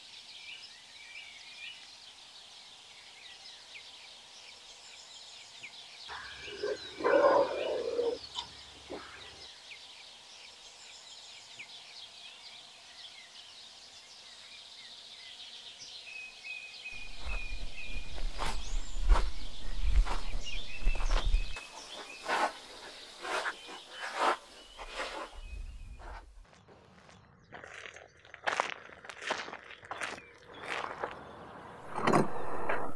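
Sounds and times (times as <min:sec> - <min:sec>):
birds chirping: 0:00.4 - 0:28.4, 0:29.6 - 0:32.9
animal call: 0:06.1 - 0:09.4
low wind rumble: 0:17.0 - 0:21.6
footsteps on gravel: 0:17.0 - 0:25.4, 0:26.0 - 0:32.9.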